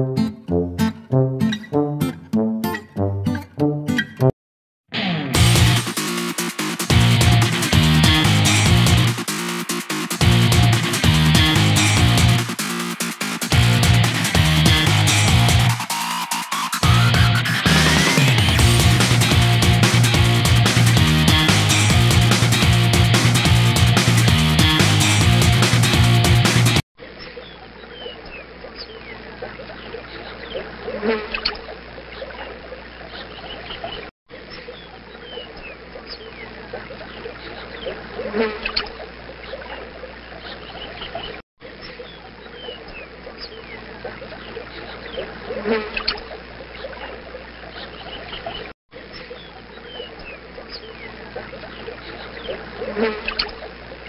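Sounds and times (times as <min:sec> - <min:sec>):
chirping animal calls: 0:27.0 - 0:54.0.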